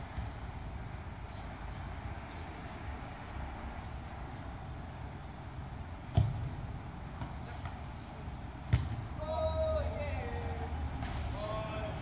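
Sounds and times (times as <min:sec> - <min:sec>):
soccer ball kicked: 0:06.0 - 0:09.5.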